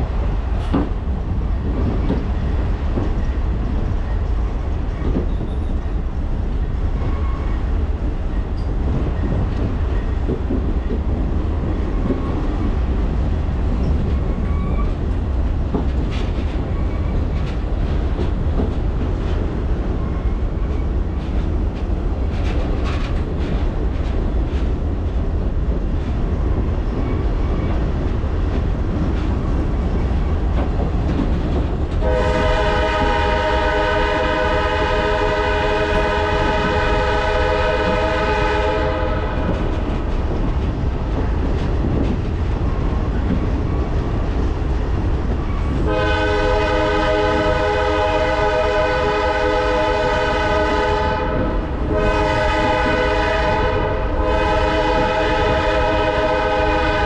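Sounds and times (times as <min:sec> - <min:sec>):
train rumbling: 0:00.0 - 0:57.0
locomotive air horn blasts: 0:32.0 - 0:39.5, 0:45.8 - 0:57.0.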